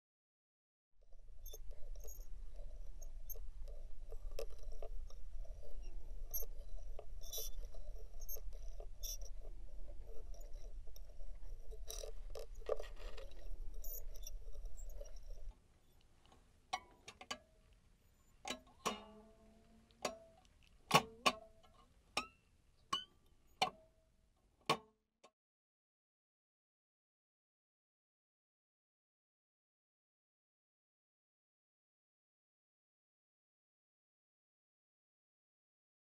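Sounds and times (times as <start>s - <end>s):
steady low hum: 1.0s - 15.5s
small objects scraped and rattled: 3.8s - 15.5s.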